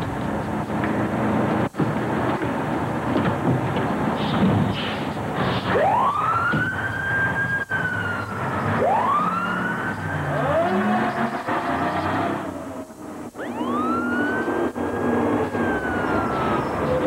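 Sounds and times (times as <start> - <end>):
truck engines rumbling: 0.0 - 17.0
fire truck sirens wailing: 5.2 - 17.0.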